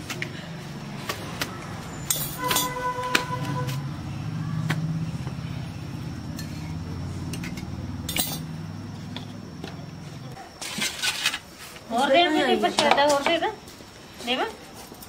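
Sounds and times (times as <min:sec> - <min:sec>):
cooking tongs clinking: 0:06.4 - 0:08.6.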